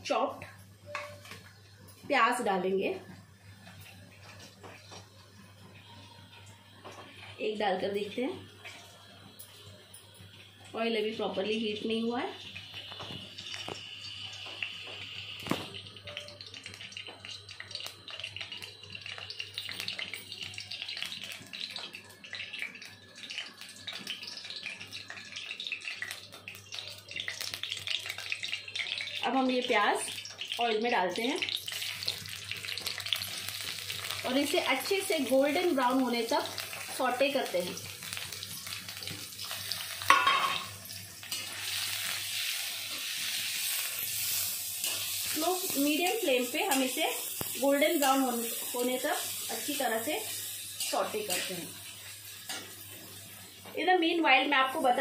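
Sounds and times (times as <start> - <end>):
oil sizzling and crackling: 0.0 - 55.0
metallic clang of pan: 40.1 - 40.8.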